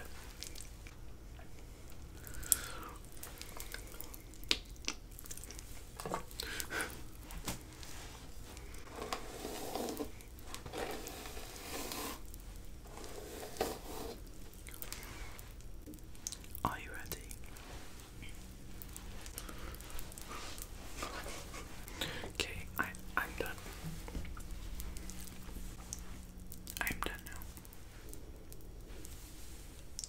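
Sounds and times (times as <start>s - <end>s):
chewing candy: 0.2s - 7.0s.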